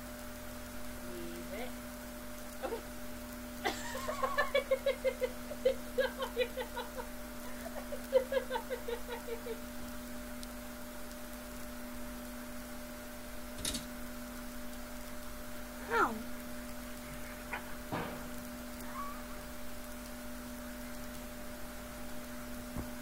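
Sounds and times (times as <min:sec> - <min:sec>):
high-pitched laughter-like pulses: 0:03.6 - 0:09.6.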